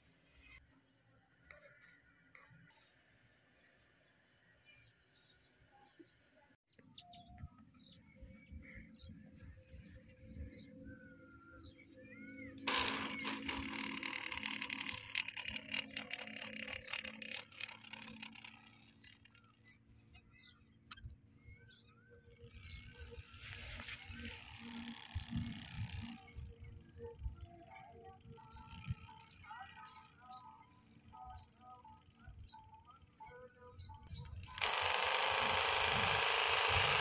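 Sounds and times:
birds chirping: 1.4s - 37.0s
drilling rig clattering: 12.6s - 19.8s, 34.2s - 37.0s.

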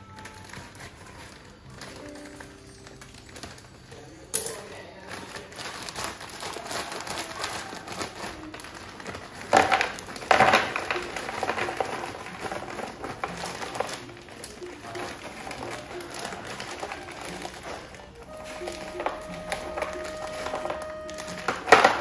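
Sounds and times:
frozen fries tumbling into box: 0.0s - 22.0s
plastic bag crinkling: 0.0s - 22.0s.

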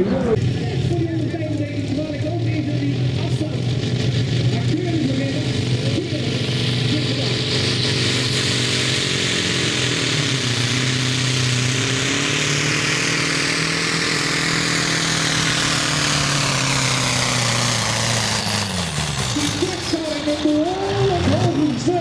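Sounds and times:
diesel truck engine under load: 0.0s - 22.0s.

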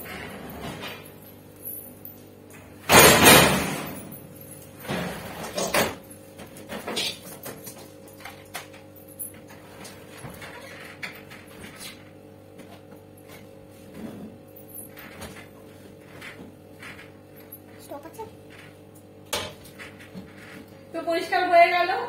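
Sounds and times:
cooker rolling scrape on floor: 0.0s - 1.1s, 19.6s - 20.8s.

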